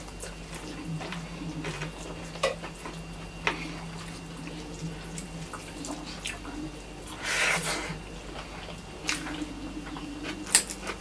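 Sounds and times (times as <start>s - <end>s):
chewing: 0.0s - 11.0s
steady low hum: 0.0s - 11.0s
wet squishing of food mixed by hand: 0.0s - 11.0s.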